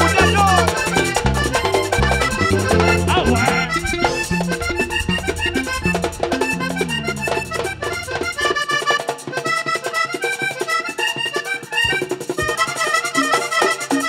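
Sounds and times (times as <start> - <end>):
button accordion melody: 0.0 - 8.9
bass line: 0.0 - 9.0
steady percussion: 0.0 - 9.4.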